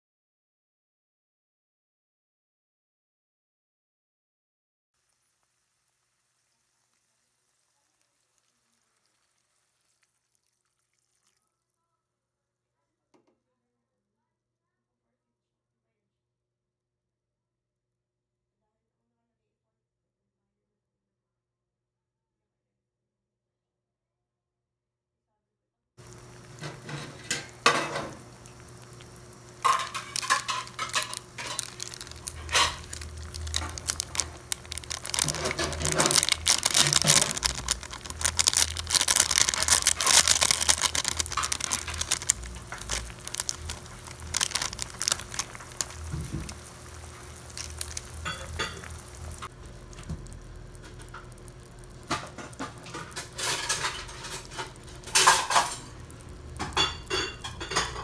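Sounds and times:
broth boiling in a wok: 0:05.0 - 0:11.6, 0:26.0 - 0:58.0
utensil clinking and scraping pan: 0:29.6 - 0:49.5, 0:52.3 - 0:55.9.

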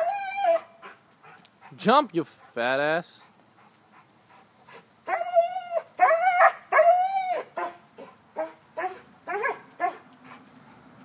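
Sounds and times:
puppy whining and crying: 0:00.0 - 0:00.9, 0:05.1 - 0:10.0
dog yipping: 0:05.1 - 0:07.8, 0:08.4 - 0:10.0.

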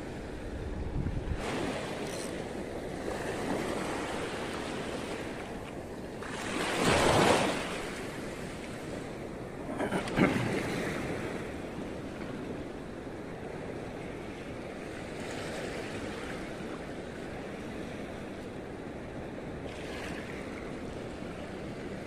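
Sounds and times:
wind on microphone: 0:00.0 - 0:15.2
small waves washing on shore: 0:00.0 - 0:22.0.

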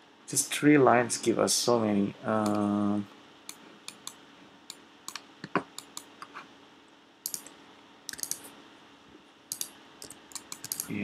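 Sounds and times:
keyboard typing: 0:05.1 - 0:06.1, 0:07.3 - 0:07.5, 0:08.1 - 0:08.5, 0:09.5 - 0:11.0.

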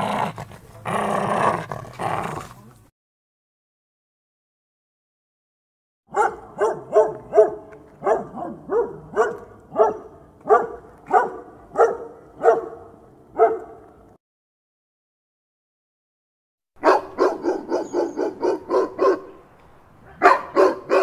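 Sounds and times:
dog barking: 0:06.1 - 0:13.9, 0:16.8 - 0:19.4, 0:20.0 - 0:21.0.

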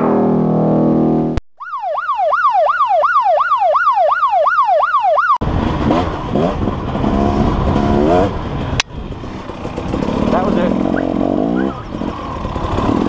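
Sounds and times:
wailing siren: 0:01.6 - 0:05.4
dirt bike engine revving: 0:05.4 - 0:13.0.

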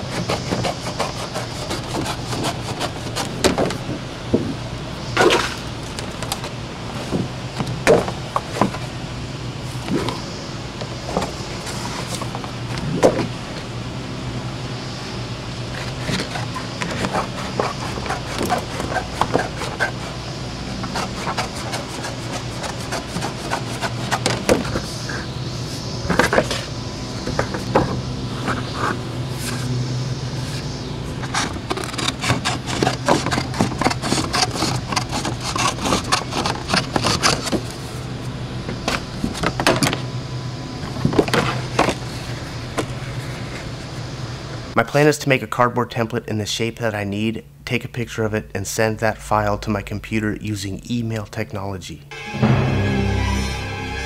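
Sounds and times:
board rustling and flexing: 0:00.0 - 0:04.6, 0:15.7 - 0:25.3, 0:31.2 - 0:37.9
steady low hum: 0:00.0 - 0:54.0.

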